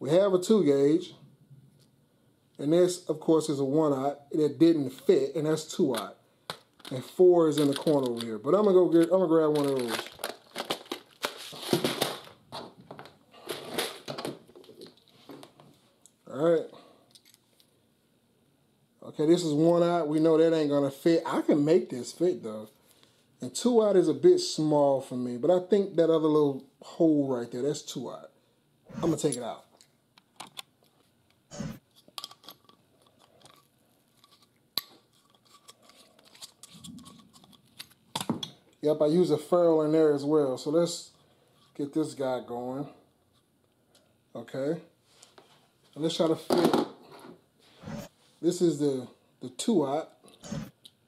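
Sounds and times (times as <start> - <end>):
plastic box clicks and rattles: 9.0 - 14.9.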